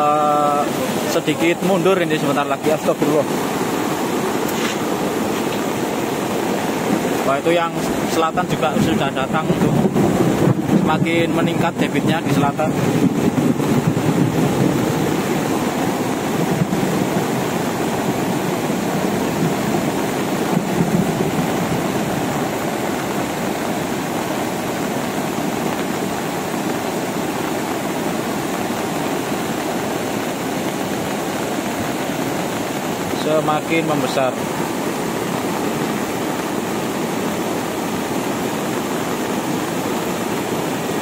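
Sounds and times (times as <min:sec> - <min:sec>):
muddy torrent rushing: 0:00.0 - 0:41.0.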